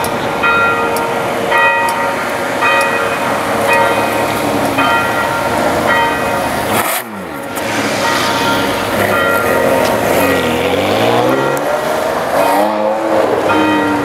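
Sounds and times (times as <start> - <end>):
bell ringing: 0.0 - 6.8, 7.5 - 11.8.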